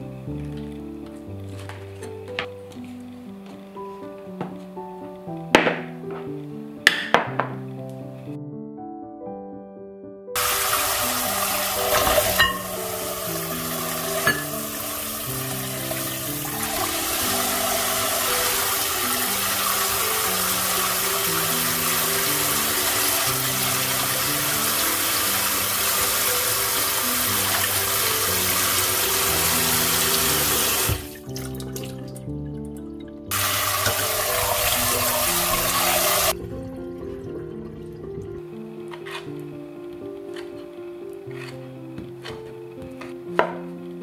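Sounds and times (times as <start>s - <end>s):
tap water splashing in bowl: 30.6s - 36.0s.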